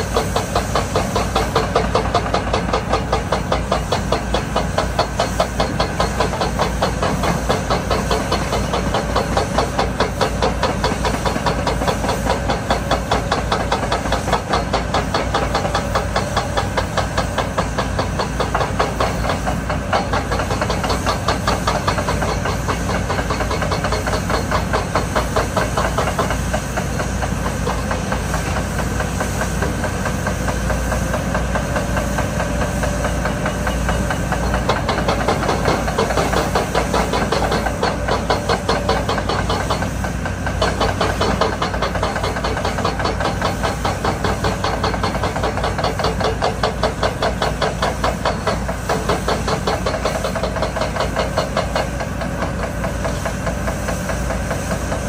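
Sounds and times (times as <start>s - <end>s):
heavy diesel machinery running: 0.0s - 55.0s
hiss: 0.0s - 55.0s
fast steady knocking: 34.5s - 39.9s.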